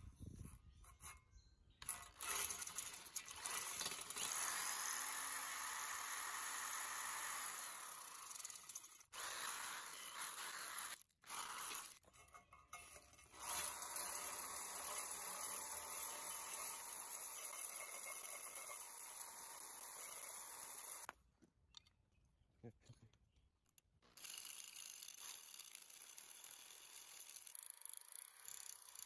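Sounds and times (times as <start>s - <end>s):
drill scouring rust off steel: 1.8s - 12.1s, 13.2s - 21.1s, 24.2s - 29.0s.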